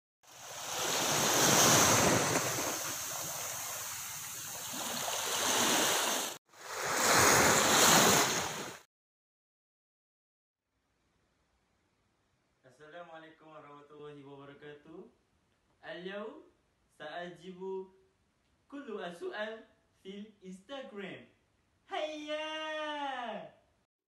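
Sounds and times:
wind: 0:00.2 - 0:08.8
waves washing onto rocks: 0:00.3 - 0:08.8.

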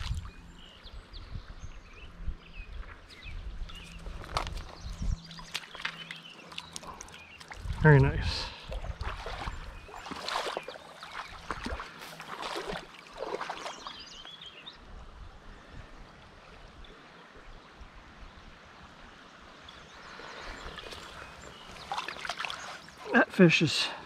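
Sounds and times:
creek water running: 0:00.0 - 0:00.7, 0:03.1 - 0:14.9, 0:16.2 - 0:24.0
fish splashing in a net: 0:09.0 - 0:13.8.

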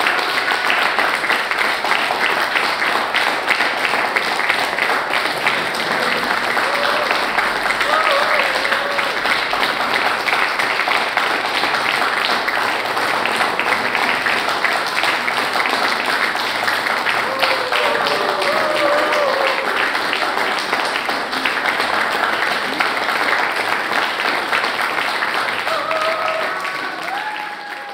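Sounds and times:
audience applauding: 0:00.0 - 0:27.9
voices calling out: 0:05.4 - 0:09.7.

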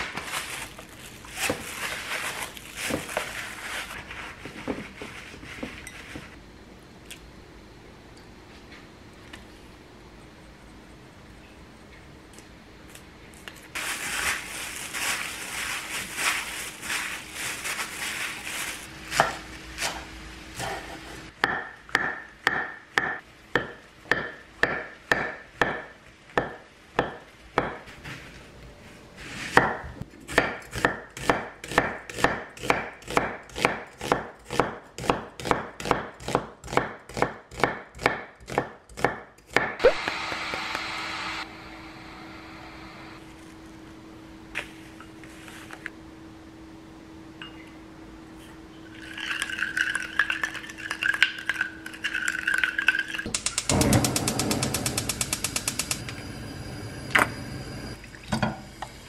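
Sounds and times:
rustling and scraping: 0:00.0 - 0:06.4, 0:12.9 - 0:21.3, 0:27.8 - 0:29.6, 0:43.2 - 0:45.9.

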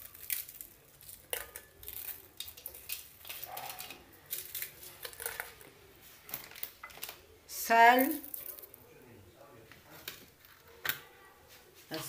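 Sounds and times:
crackers clicking against glass: 0:00.0 - 0:05.7, 0:06.3 - 0:07.3, 0:08.0 - 0:08.8.

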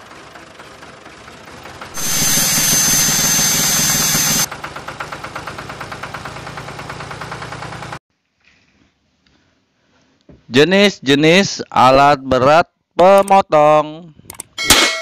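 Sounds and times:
heavy machine engine running: 0:00.0 - 0:08.0
rock saw cutting stone: 0:02.0 - 0:04.5.

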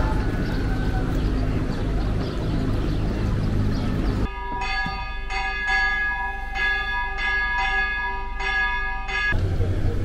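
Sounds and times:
steady noisy background: 0:00.0 - 0:10.0
church bells ringing: 0:04.2 - 0:09.4.

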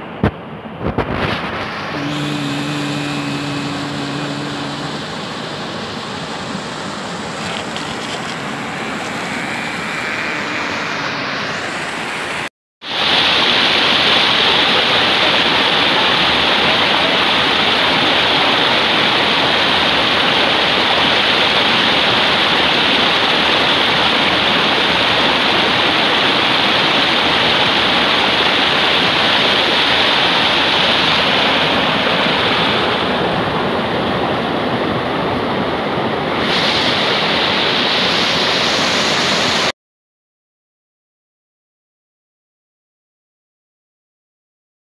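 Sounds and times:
water rushing over waterfall: 0:00.1 - 0:39.7.

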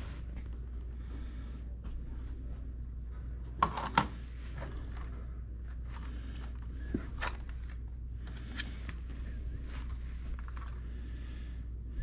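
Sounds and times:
steady low hum: 0:00.0 - 0:12.0
objects being handled: 0:03.5 - 0:10.9.

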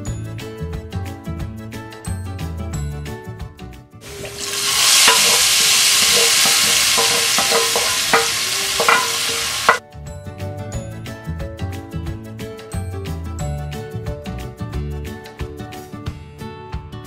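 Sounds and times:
hot oil sizzling: 0:04.0 - 0:09.8
wooden spatula knocking on pan: 0:04.1 - 0:09.8.

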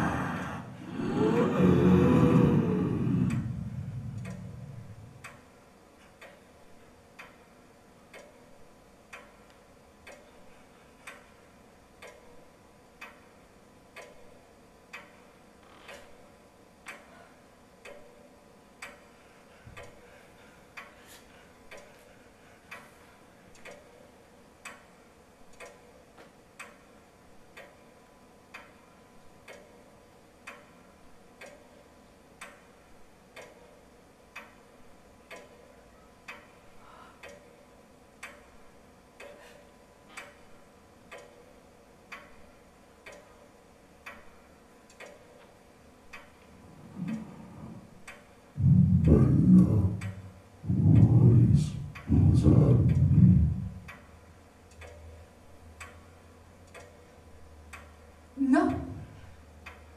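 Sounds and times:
low rumble: 0:00.0 - 0:05.4, 0:46.6 - 0:47.9, 0:48.6 - 0:53.9
faint ticking: 0:00.0 - 0:06.5, 0:07.1 - 0:59.9
low steady hum: 0:00.0 - 0:59.9.

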